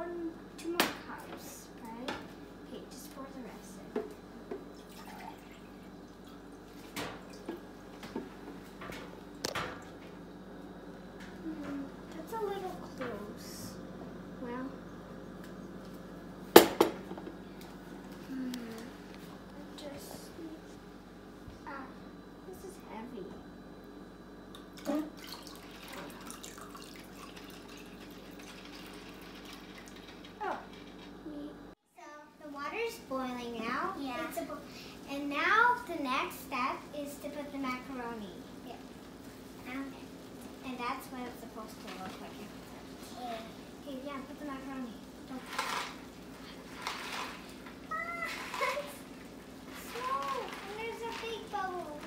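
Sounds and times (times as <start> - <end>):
water pouring into glass cup: 25.2 - 30.0.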